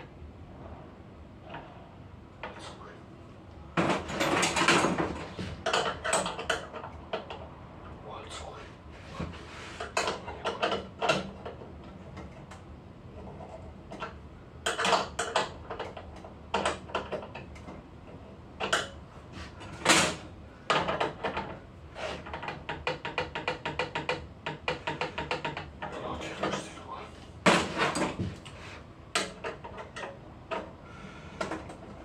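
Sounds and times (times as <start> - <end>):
clicks and knocks of machine parts: 3.8 - 7.4, 9.8 - 12.6, 13.2 - 19.0, 19.8 - 21.6, 22.2 - 26.7, 29.1 - 30.8, 31.4 - 32.0.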